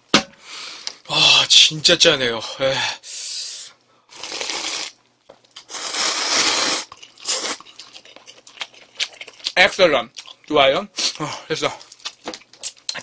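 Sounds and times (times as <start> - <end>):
person slurping noodles: 4.1 - 5.0, 5.7 - 7.7
person chewing: 4.1 - 13.0.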